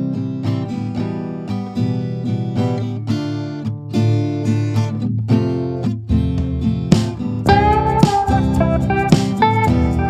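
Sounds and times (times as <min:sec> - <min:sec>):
acoustic guitar background music: 0:00.0 - 0:10.0.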